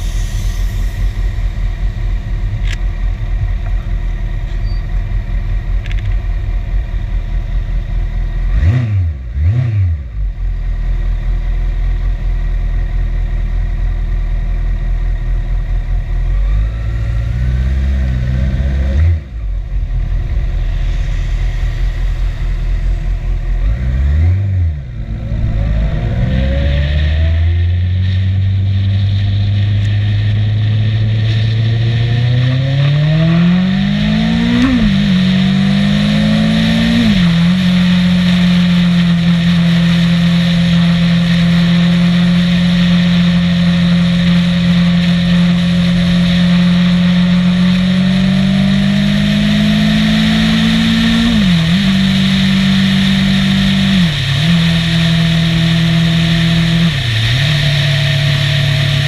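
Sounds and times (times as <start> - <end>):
wind and road noise: 0.0 - 59.0
motorcycle engine shifting gears: 16.2 - 59.0.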